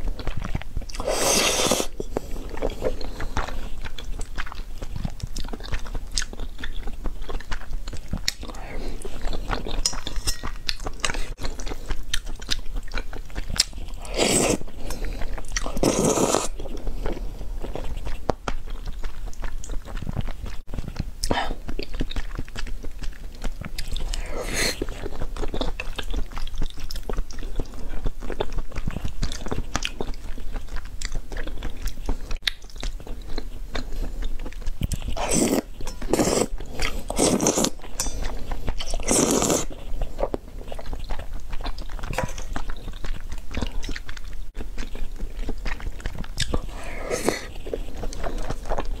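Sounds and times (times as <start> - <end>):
wet chewing: 0.0 - 49.0
slurping noodles: 1.0 - 3.7, 13.6 - 17.4, 23.8 - 25.1, 34.9 - 40.9, 46.4 - 49.0.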